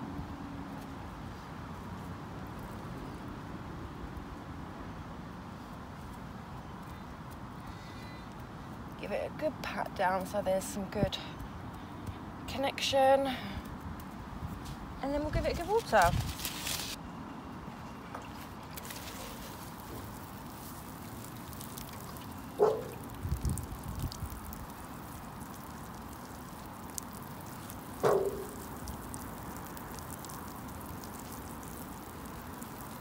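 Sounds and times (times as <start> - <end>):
water pouring onto soil: 15.3 - 17.0, 18.3 - 33.0.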